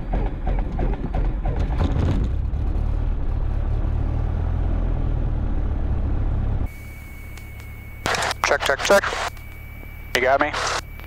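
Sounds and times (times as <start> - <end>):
aircraft engine idling drone: 6.6 - 11.0
quiet hum with high tone: 6.7 - 11.0.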